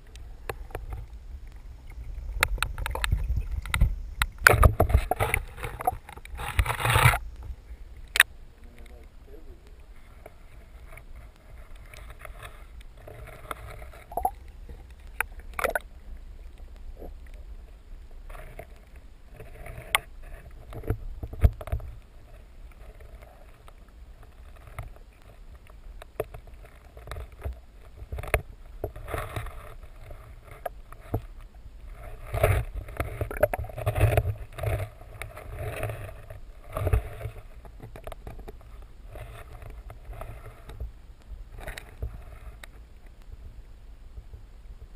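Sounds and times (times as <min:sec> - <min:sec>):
underwater rumble of moving water: 0:00.0 - 0:44.9.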